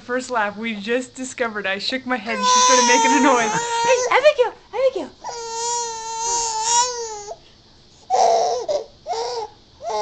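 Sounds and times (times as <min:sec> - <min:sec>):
baby wailing: 0:02.3 - 0:04.2, 0:05.2 - 0:07.4, 0:08.1 - 0:10.0.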